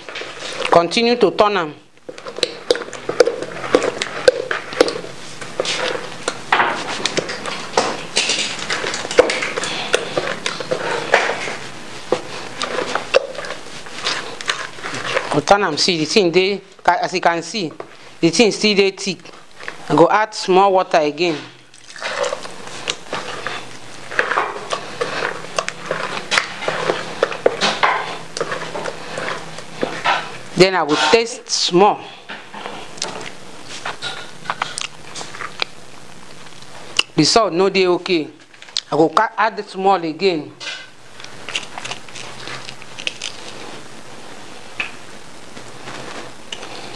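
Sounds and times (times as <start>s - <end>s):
wet batter squelching: 2.0s - 16.2s, 19.1s - 31.6s.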